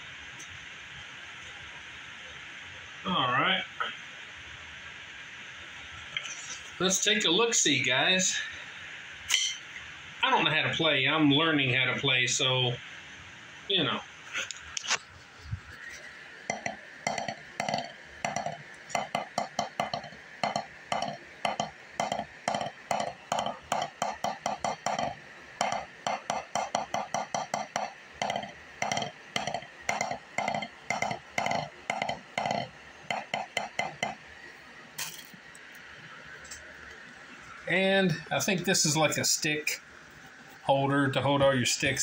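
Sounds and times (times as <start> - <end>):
drumsticks on practice pad: 15.9 - 34.2.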